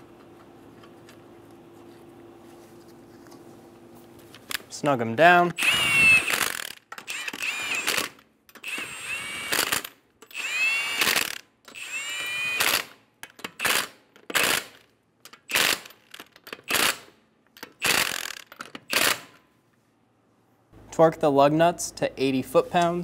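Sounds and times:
impact wrench bursts: 5.5 - 19.4.

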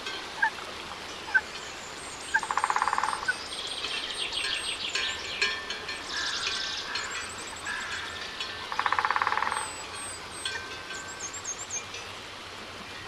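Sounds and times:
birds chirping and whistling: 1.2 - 11.9
bird rattling trill: 2.3 - 3.3, 5.0 - 9.8.

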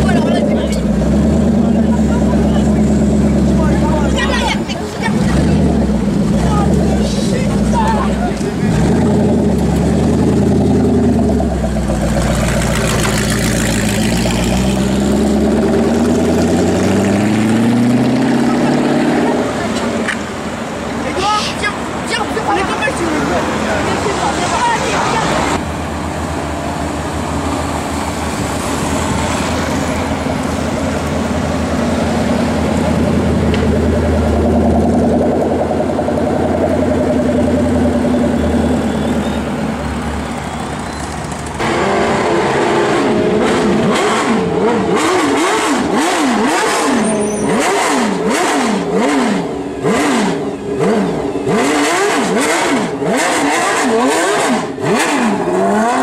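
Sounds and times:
street traffic drone: 0.0 - 56.0.

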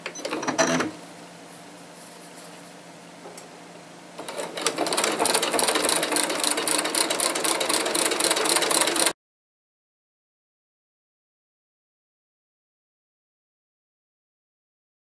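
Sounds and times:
sewing machine ticking: 4.2 - 9.2.

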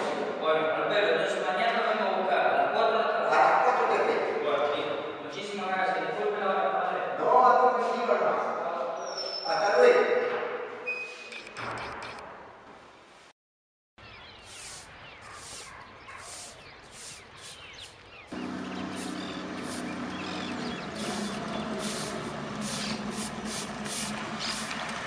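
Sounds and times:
broom sweeping: 14.4 - 18.0, 18.9 - 20.0, 21.0 - 24.7
truck engine hum: 18.3 - 25.0.

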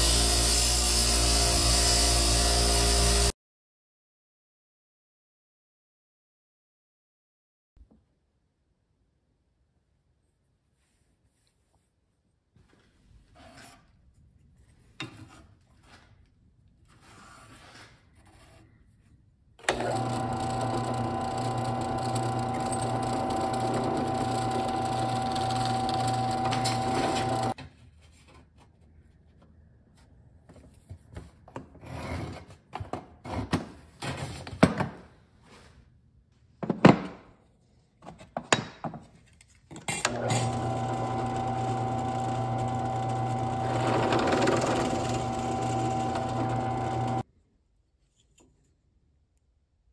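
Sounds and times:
drill boring into wood: 0.0 - 3.3, 19.6 - 27.6, 40.1 - 47.2
drill press motor humming: 19.6 - 27.6, 40.1 - 47.2.

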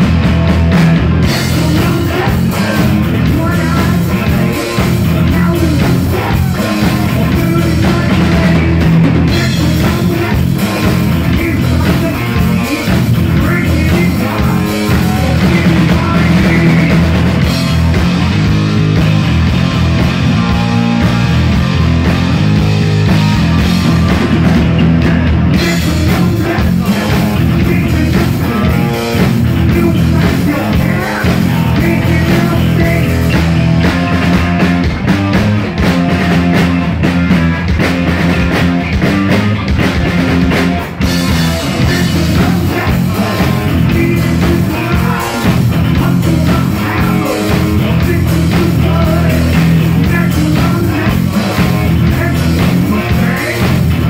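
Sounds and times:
heavy metal band playing: 0.0 - 54.0.

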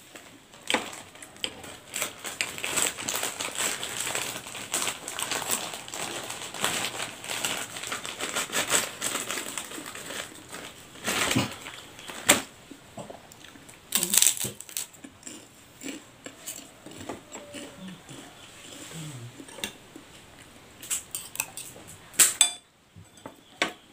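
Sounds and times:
cracker crunching: 0.2 - 12.5, 13.3 - 18.8
slurping and chewing noodles: 15.2 - 20.1
cutlery clinking on ceramic plate: 22.4 - 23.8.

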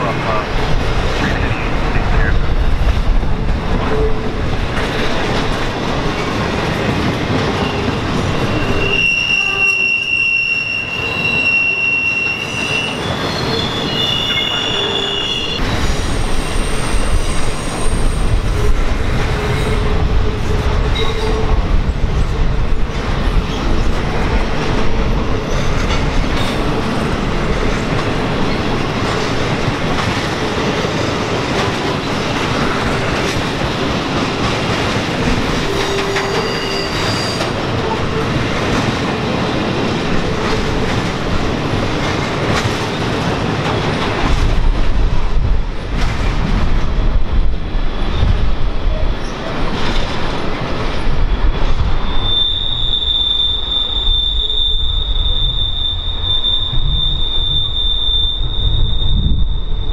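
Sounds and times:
train wheels rolling on rail: 0.0 - 59.9
high-pitched wheel squeal: 7.6 - 18.7, 35.7 - 37.5, 51.6 - 59.9.

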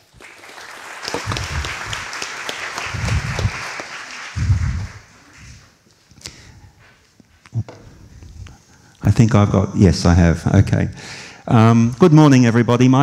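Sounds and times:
audience applause: 0.0 - 5.8
dull low thumps: 1.2 - 2.1, 2.9 - 3.6, 4.4 - 5.0.

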